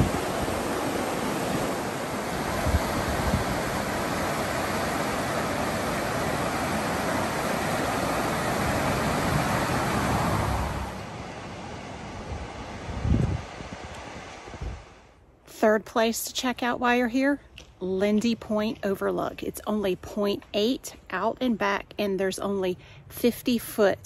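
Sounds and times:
whitewater rapids rushing: 0.0s - 12.9s.

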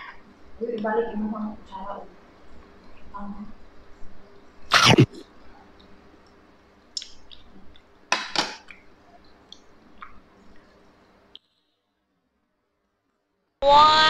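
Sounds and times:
wet mouth clicks: 7.0s - 7.5s.

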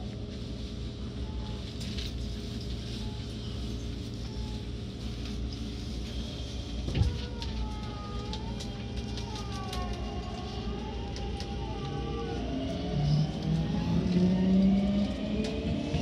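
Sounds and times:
train low rumble: 0.0s - 16.0s
traction inverter whine: 9.9s - 16.0s.

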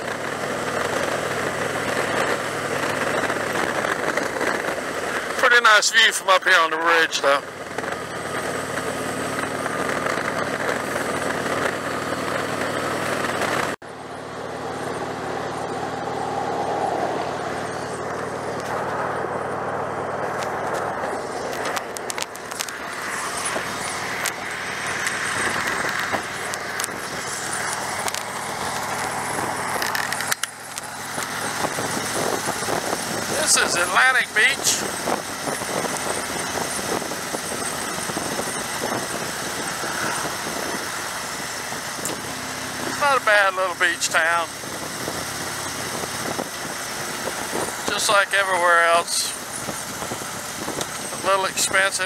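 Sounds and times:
motorcycle engine running: 0.0s - 52.0s
wind noise: 14.9s - 43.1s, 44.1s - 52.0s.

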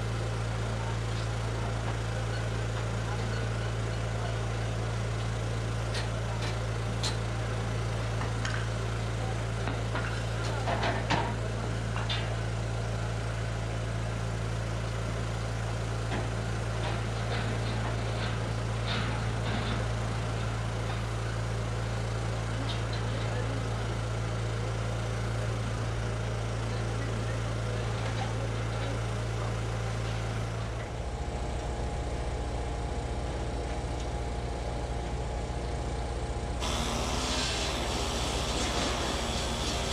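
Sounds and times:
engine idling: 12.7s - 39.9s.

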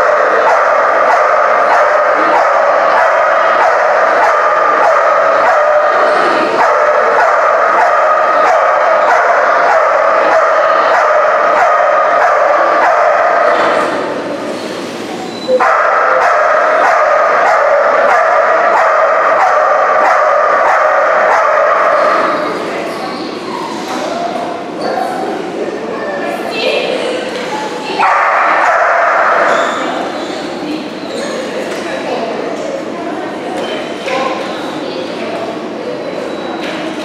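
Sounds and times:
dog barking: 0.0s - 13.8s, 15.5s - 22.3s, 28.0s - 29.8s.

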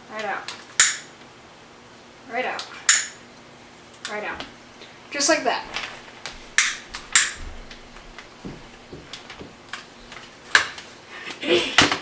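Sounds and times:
plastic bag crinkling: 5.6s - 11.0s.

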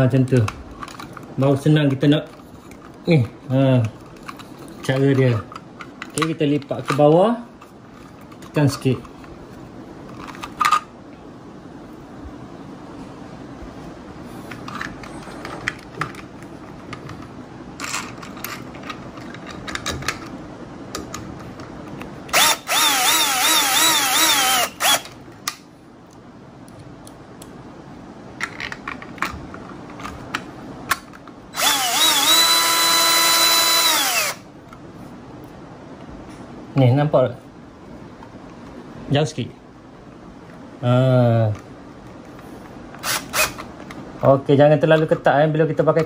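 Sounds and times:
cordless drill driving screws: 22.3s - 25.1s, 31.6s - 34.4s, 43.0s - 43.7s.

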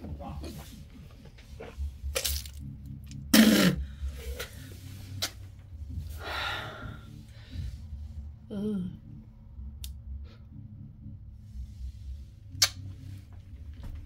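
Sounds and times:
person sneezing: 3.3s - 3.8s.

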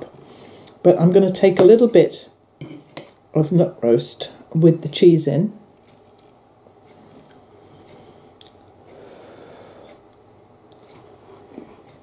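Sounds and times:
faint handling sounds: 5.8s - 8.2s.

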